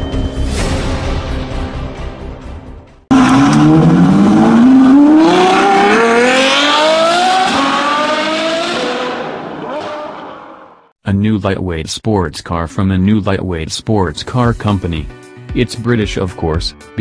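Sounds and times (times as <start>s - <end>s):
car engine accelerating: 3.1s - 10.9s.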